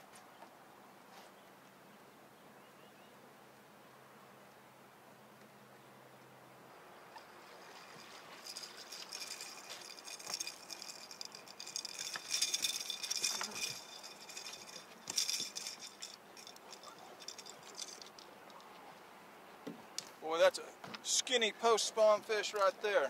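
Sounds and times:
fishing reel clicking: 0:08.4 - 0:18.2.

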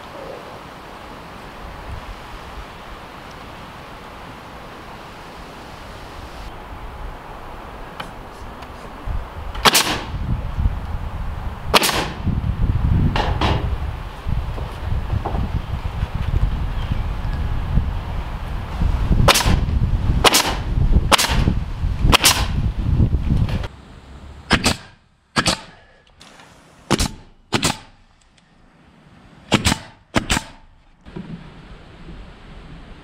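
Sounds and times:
nail gun firing: 0:09.6 - 0:10.1, 0:11.7 - 0:12.2, 0:19.3 - 0:19.6, 0:20.2 - 0:21.5, 0:22.1 - 0:22.6, 0:24.5 - 0:25.8, 0:26.9 - 0:28.0, 0:29.5 - 0:30.7.

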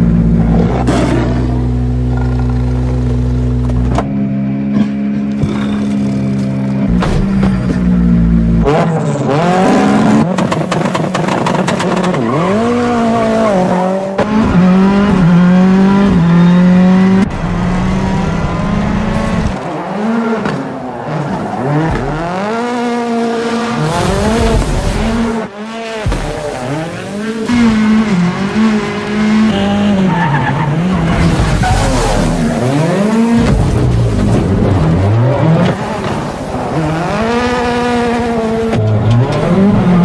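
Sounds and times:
car engine revving high: 0:12.2 - 0:40.0
tyres squealing: 0:30.0 - 0:33.0.

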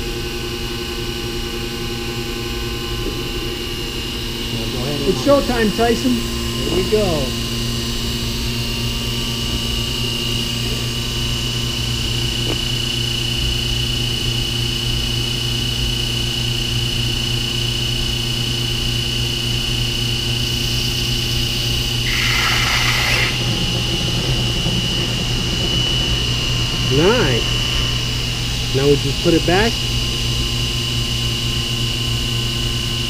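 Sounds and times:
vacuum pump humming and whining: 0:00.0 - 0:33.0
air hissing: 0:21.2 - 0:30.2.

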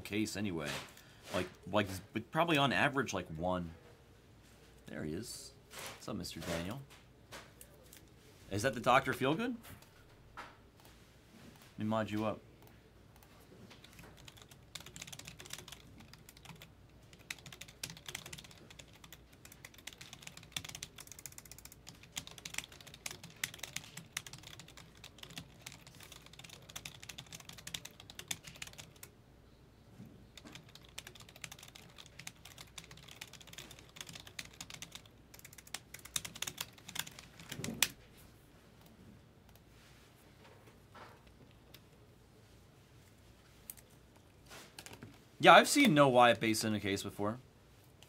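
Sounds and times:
computer keyboard typing: 0:13.8 - 0:29.1, 0:30.4 - 0:38.0.

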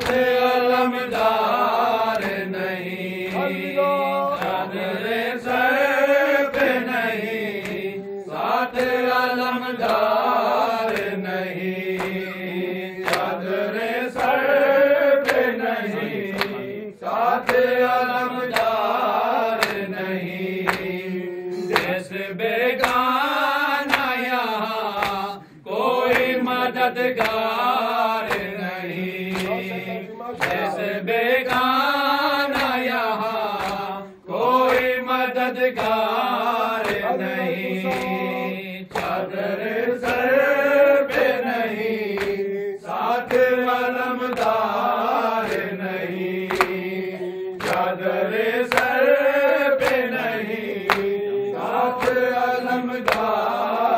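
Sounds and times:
men chanting: 0:00.0 - 0:53.9
chest-beating slaps: 0:09.8 - 0:14.5, 0:15.2 - 0:16.8, 0:19.5 - 0:19.9, 0:20.6 - 0:22.1, 0:23.8 - 0:24.2, 0:24.9 - 0:26.4, 0:28.2 - 0:28.6, 0:29.2 - 0:30.8, 0:33.5 - 0:33.9, 0:36.8 - 0:38.3, 0:38.9 - 0:39.2, 0:41.1 - 0:42.6, 0:44.2 - 0:48.0, 0:48.6 - 0:49.0, 0:49.8 - 0:52.3, 0:53.0 - 0:53.5.

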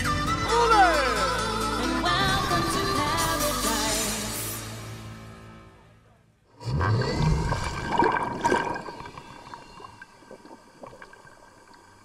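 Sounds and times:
music: 0:00.0 - 0:06.4.

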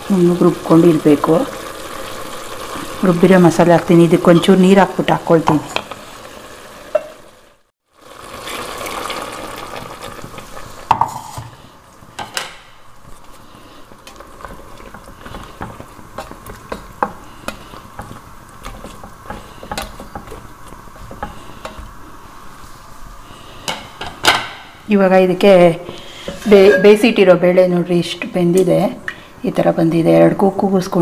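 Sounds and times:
spoon scraping and clinking pot: 0:26.2 - 0:27.2.

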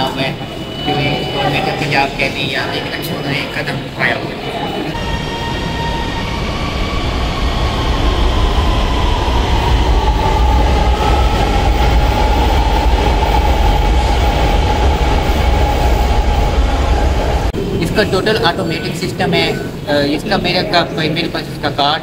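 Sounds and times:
metro train rumbling on track: 0:00.0 - 0:22.0.

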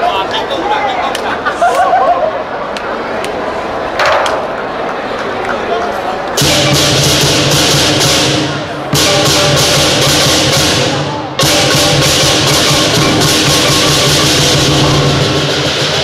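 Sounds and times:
big drum beating: 0:06.4 - 0:16.0
cymbals clashing: 0:06.4 - 0:16.0.

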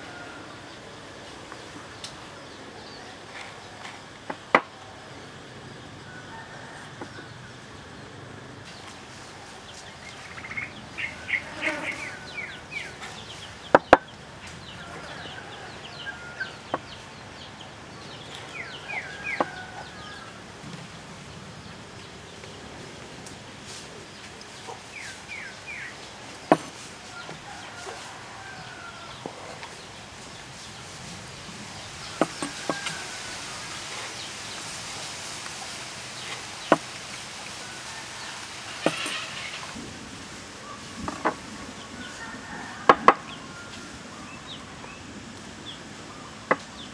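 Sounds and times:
knife knocking on wooden board: 0:32.2 - 0:32.8.

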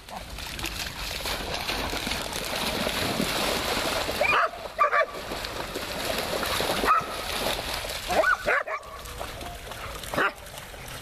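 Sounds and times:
dogs splashing through water: 0:00.0 - 0:11.0
dog barks: 0:04.2 - 0:05.2, 0:06.8 - 0:07.2, 0:08.1 - 0:09.0, 0:09.8 - 0:10.4.

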